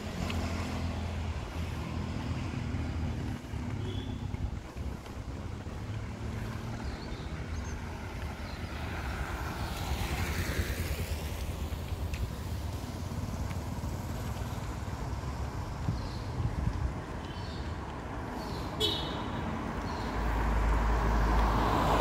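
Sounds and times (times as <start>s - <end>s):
vehicle passing by: 0.0s - 3.8s, 4.8s - 11.8s, 20.1s - 22.0s
traffic rumble: 0.0s - 22.0s
wind: 0.0s - 22.0s.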